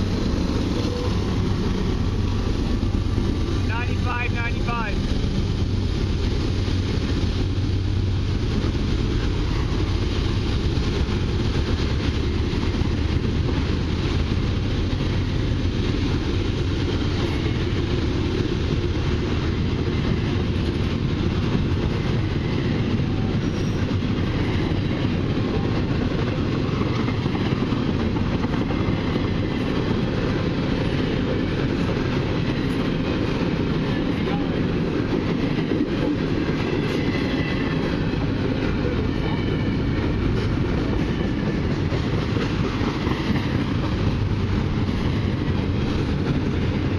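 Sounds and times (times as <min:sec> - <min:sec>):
freight train wheels rumbling on rail: 0:00.0 - 0:46.9.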